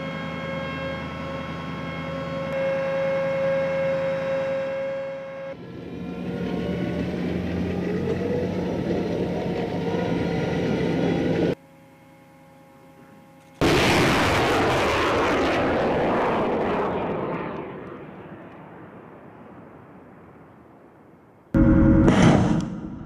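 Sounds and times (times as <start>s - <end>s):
diesel engine running: 5.6s - 11.6s
faint hum: 11.0s - 15.1s
rocket launch roar: 13.6s - 20.4s, 21.5s - 23.0s.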